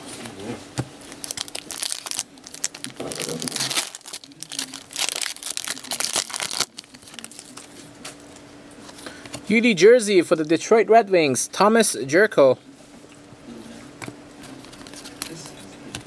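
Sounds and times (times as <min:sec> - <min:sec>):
foil wrapper crinkling and tearing: 0:01.1 - 0:07.6.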